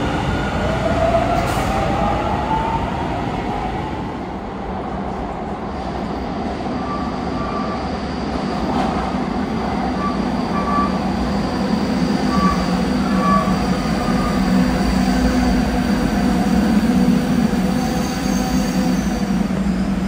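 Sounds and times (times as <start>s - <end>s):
train rumbling into station: 0.0s - 20.0s.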